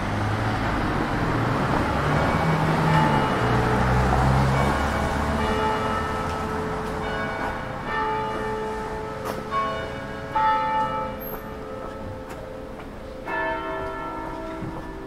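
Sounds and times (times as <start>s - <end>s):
passing car engine: 0.0s - 7.8s
church bells ringing: 0.0s - 15.0s.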